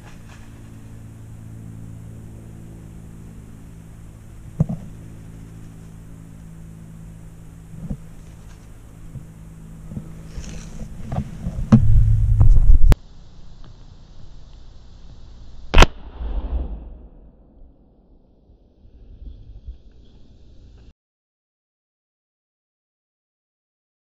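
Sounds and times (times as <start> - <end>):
distant motor hum: 0.0 - 15.8.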